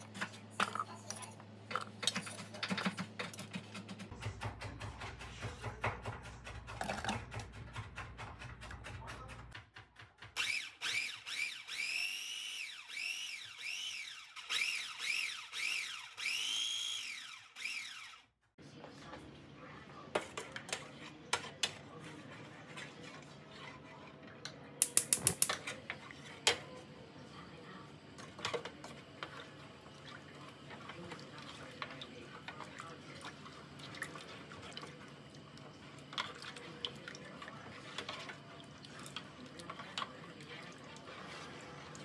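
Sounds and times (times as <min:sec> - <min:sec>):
food processor motor whine: 0:10.4 - 0:18.3.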